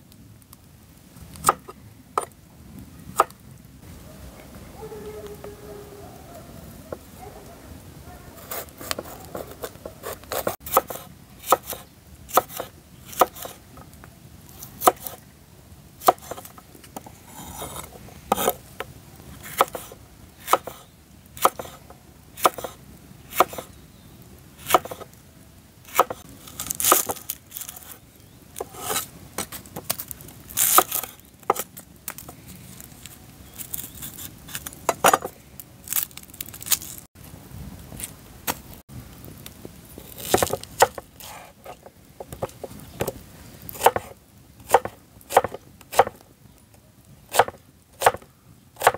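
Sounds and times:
knife chopping on wooden board: 8.5 - 13.6, 14.8 - 15.2, 16.0 - 16.5, 17.5 - 18.6, 19.5 - 19.9, 20.5 - 20.8, 21.4 - 21.8, 22.4 - 22.8, 23.4 - 23.7, 24.6 - 25.1, 25.9 - 26.2, 40.2 - 43.1, 43.8 - 44.1, 44.7 - 46.2, 47.3 - 48.2.

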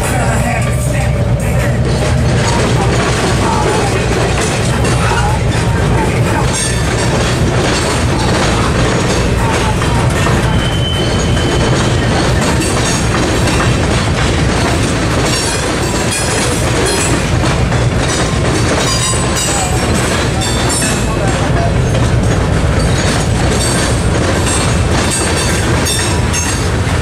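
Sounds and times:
train wheels clattering over rails: 0.0 - 27.0
wheel squeals: 0.6 - 17.3.

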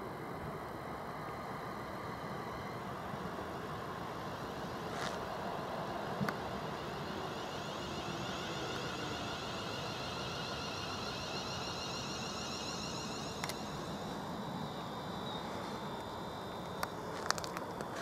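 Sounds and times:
traction motor whine: 3.8 - 18.0
train wheels rumbling on rail: 3.8 - 18.0.

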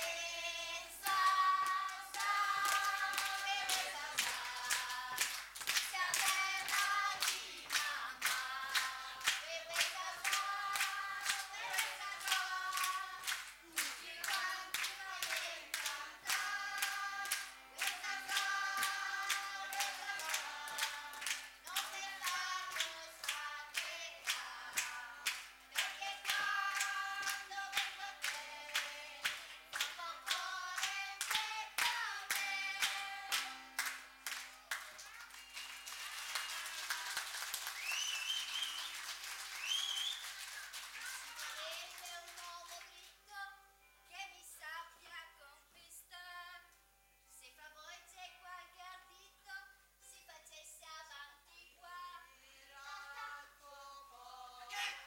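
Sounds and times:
flamenco-style singing: 0.0 - 34.4, 51.0 - 55.0
hand clapping: 1.0 - 42.9.

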